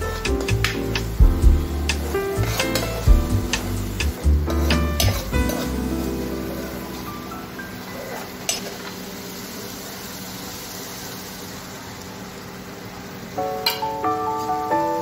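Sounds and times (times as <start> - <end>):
background music: 0.0 - 7.4
gravy sizzling: 0.0 - 15.0
water poured into hot pan: 5.0 - 12.8.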